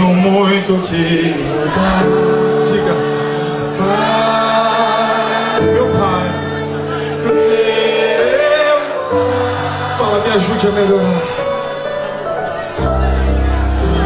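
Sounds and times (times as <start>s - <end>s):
man singing gospel song: 0.0s - 9.1s
sustained accompaniment chords: 0.9s - 14.0s.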